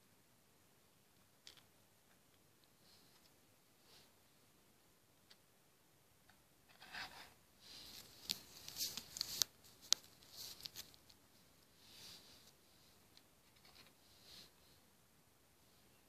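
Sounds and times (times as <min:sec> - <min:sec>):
plastic beads clicking and rustling: 0:07.8 - 0:11.2.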